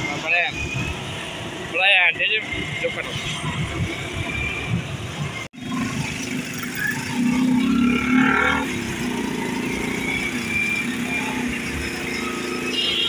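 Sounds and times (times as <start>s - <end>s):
motorcycle engines running: 5.6s - 13.0s.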